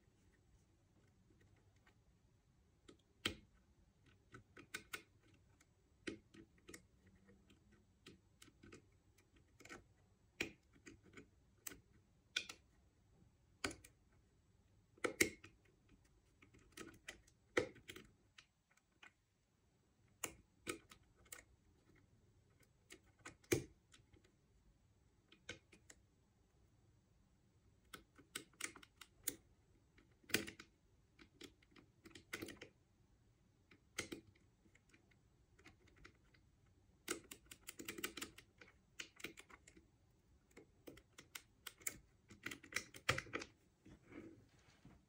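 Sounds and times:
lock picking metallic clicks: 0:40.5 - 0:43.5.

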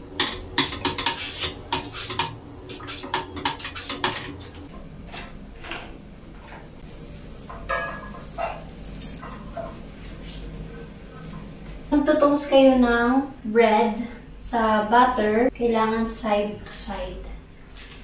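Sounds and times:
frying pan knocking and clattering: 0:07.4 - 0:09.8.

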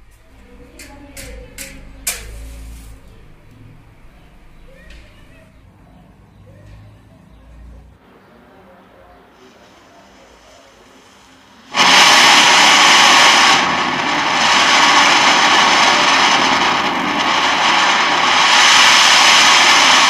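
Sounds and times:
firework hissing rush: 0:09.6 - 0:20.0.

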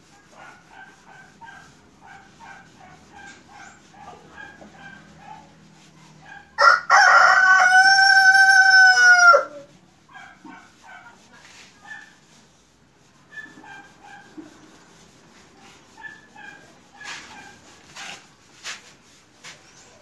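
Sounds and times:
rooster crowing: 0:06.6 - 0:09.7.

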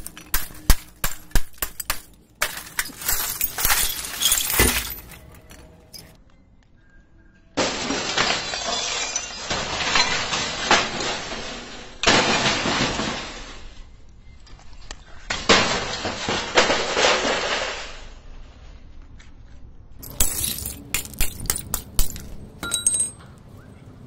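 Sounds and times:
glass shards clattering: 0:00.0 - 0:06.2, 0:07.8 - 0:11.4, 0:20.0 - 0:23.3
glass shattering: 0:00.0 - 0:06.2, 0:07.6 - 0:13.5, 0:20.0 - 0:23.3.

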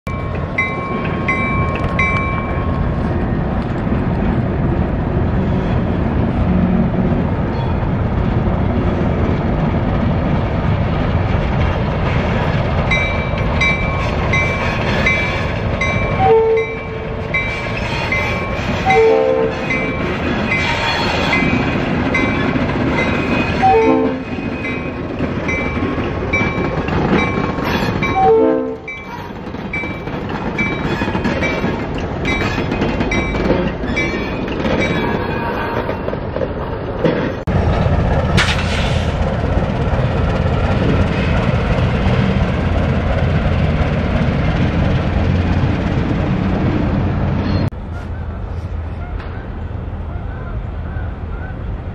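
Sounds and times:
diesel locomotive rumbling: 0:00.0 - 0:51.9
bell ringing: 0:00.1 - 0:02.9.

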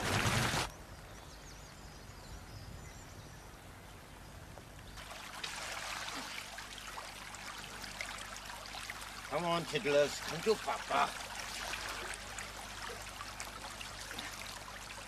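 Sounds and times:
stream water trickling: 0:04.8 - 0:15.0.

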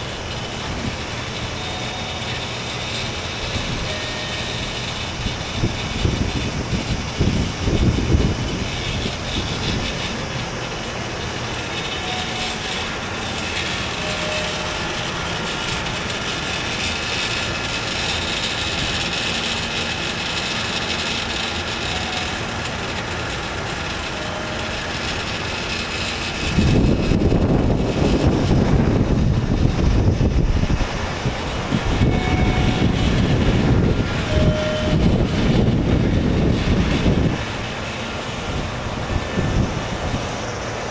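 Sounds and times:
wind buffeting microphone: 0:04.6 - 0:10.8, 0:26.3 - 0:40.5.

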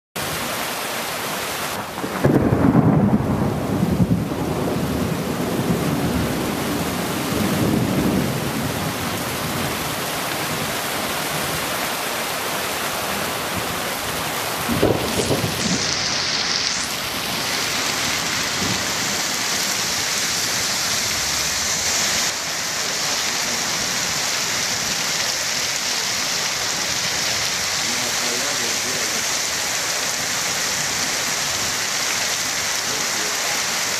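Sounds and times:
heavy rain pouring: 0:00.2 - 0:33.9
thunder rumbling: 0:01.7 - 0:10.8, 0:13.3 - 0:21.7.

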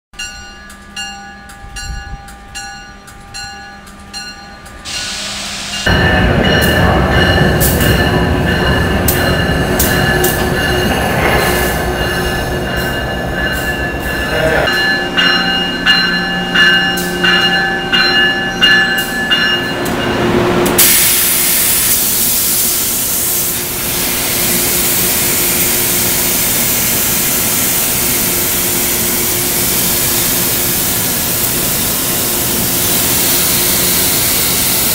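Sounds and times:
train rumbling: 0:00.2 - 0:34.9
steady loud hiss: 0:04.9 - 0:06.2, 0:20.8 - 0:34.9
steady tones: 0:05.7 - 0:20.8.

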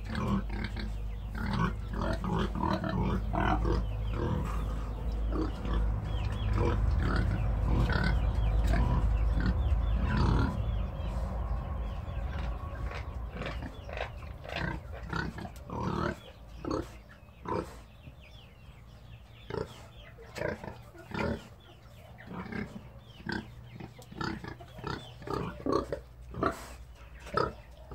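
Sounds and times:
pig grunting: 0:00.0 - 0:11.4, 0:12.1 - 0:18.0, 0:19.4 - 0:21.6, 0:22.2 - 0:27.9
steady low rumble: 0:00.0 - 0:17.4.

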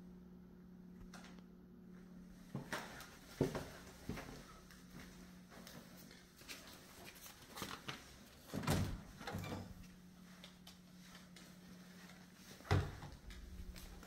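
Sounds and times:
faint low hum: 0:00.0 - 0:14.0
closet door opening with thud: 0:08.5 - 0:09.8, 0:12.6 - 0:13.3.

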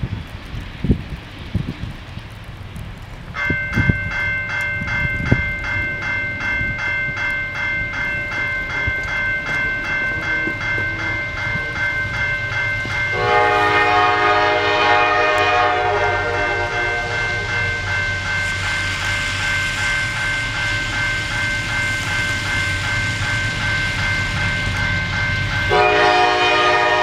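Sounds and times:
diesel train approaching: 0:00.0 - 0:27.0
train bell ringing: 0:03.4 - 0:27.0
locomotive air horn blast: 0:13.1 - 0:17.8, 0:25.7 - 0:27.0.

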